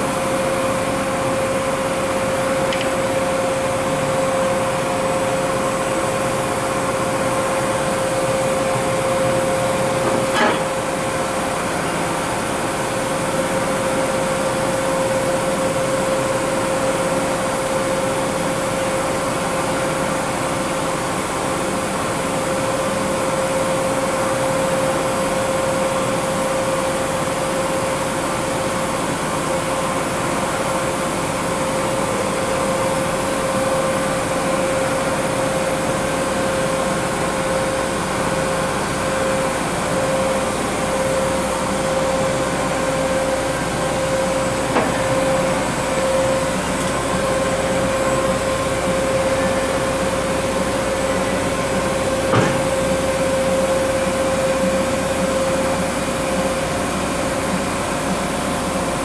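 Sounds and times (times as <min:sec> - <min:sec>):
machining center hum and whine: 0:00.0 - 0:59.0
sharp click: 0:02.7 - 0:03.0.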